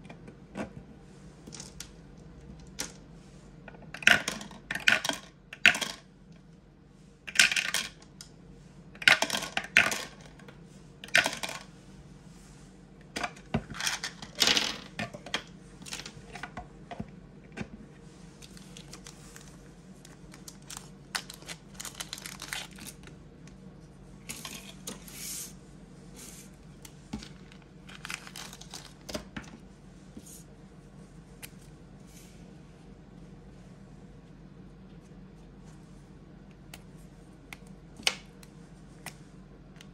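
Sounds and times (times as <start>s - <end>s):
dice clattering into tray: 13.8s - 14.9s
plastic sleeve rustling: 18.2s - 23.2s, 27.0s - 29.2s.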